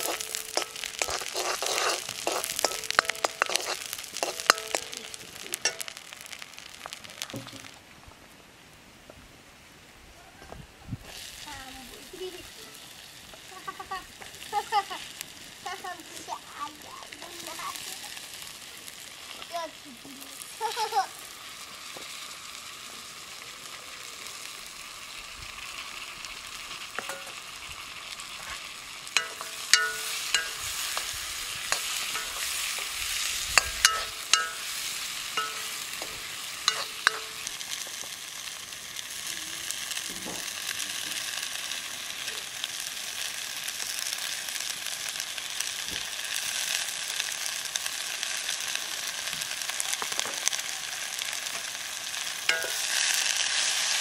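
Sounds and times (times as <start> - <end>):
metal ladle scraping wok: 0.0 - 6.4, 27.0 - 27.6, 28.3 - 37.8, 52.5 - 53.8
vegetables sizzling in hot oil: 0.0 - 8.4, 10.9 - 54.0.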